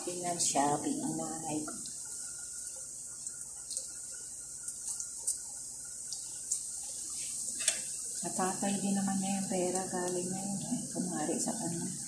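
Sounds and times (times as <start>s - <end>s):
dough deep-frying in oil: 0.0s - 12.0s
oil popping and crackling: 1.6s - 11.5s.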